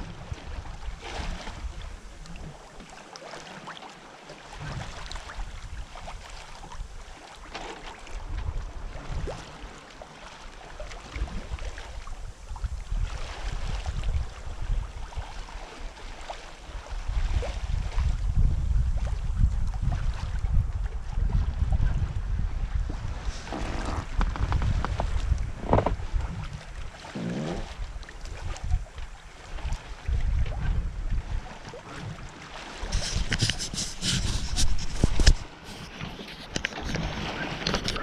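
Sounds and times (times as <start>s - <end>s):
water rushing along boat hull: 0.0s - 38.0s
wind buffeting microphone: 11.0s - 15.7s, 16.6s - 38.0s.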